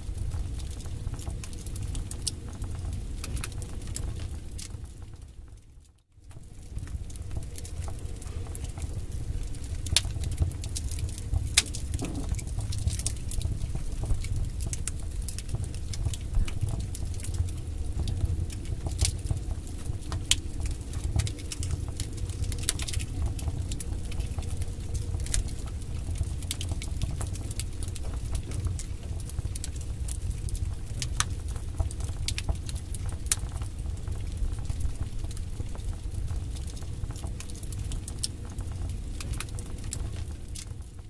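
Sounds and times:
fire crackling and popping: 0.0 - 41.0
low rumble of flames: 0.0 - 41.0.

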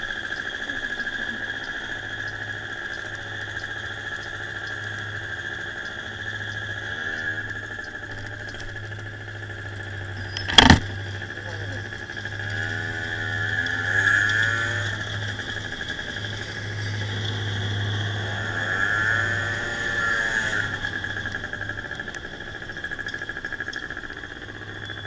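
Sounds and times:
high whine: 0.0 - 25.0
scooter engine revving: 10.3 - 21.9.

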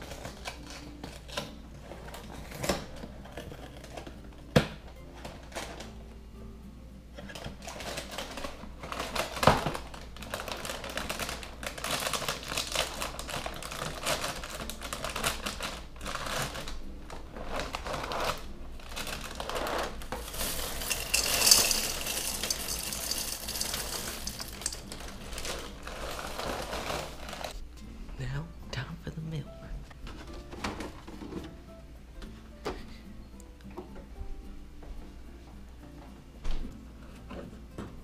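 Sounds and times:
plastic bag crinkling: 7.3 - 27.6
cereal pouring into bowl: 19.0 - 27.5.

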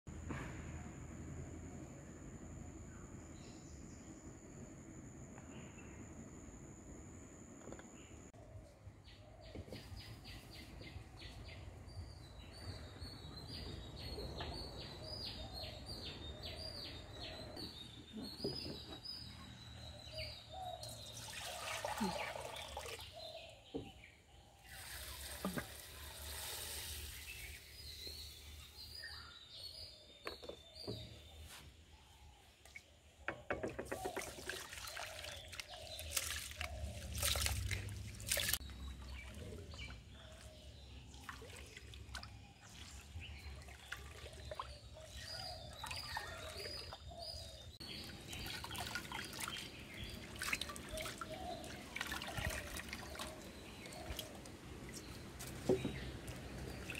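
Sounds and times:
rice washed by hand splashing: 21.1 - 23.1, 24.7 - 28.5, 33.8 - 40.4, 48.0 - 56.9
rice and water poured into basin: 21.2 - 23.0, 24.7 - 28.0.

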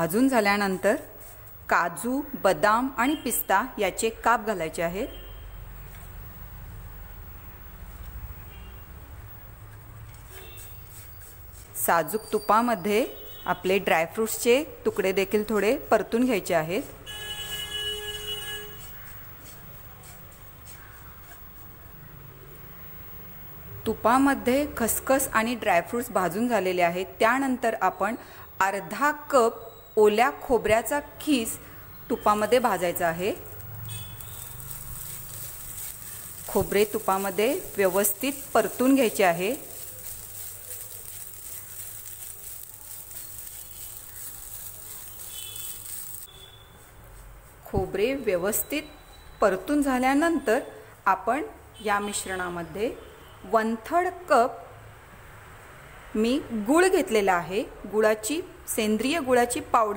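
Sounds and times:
spatula scraping a pan: 10.1 - 12.5, 16.8 - 21.8, 33.3 - 47.0.

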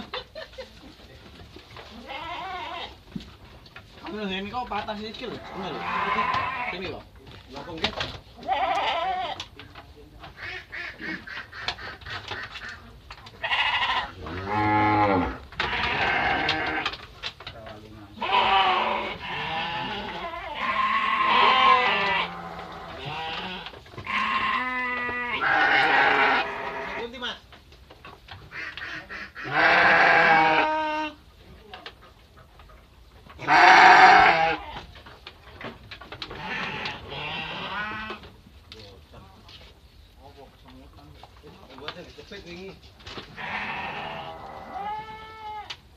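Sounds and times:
sheep bleating: 1.9 - 2.9, 5.4 - 6.8, 8.4 - 9.4, 13.4 - 16.9, 18.2 - 27.0, 29.4 - 31.2, 33.4 - 34.8, 36.3 - 38.2, 43.4 - 45.7.

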